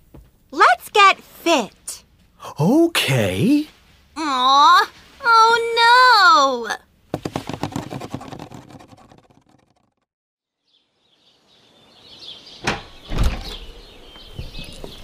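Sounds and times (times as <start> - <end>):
heavy thumps: 7.1 - 9.9
fast run of clicks: 7.2 - 10.0
birds chirping: 10.7 - 15.0.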